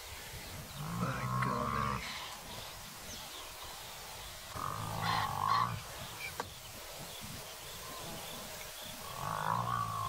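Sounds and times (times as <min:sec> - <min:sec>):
buffalo bellowing: 0:04.6 - 0:05.8.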